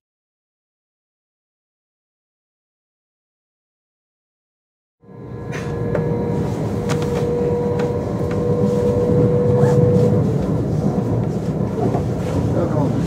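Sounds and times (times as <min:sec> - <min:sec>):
steady high tone: 0:05.0 - 0:12.7
train wheels rumbling: 0:05.1 - 0:13.0.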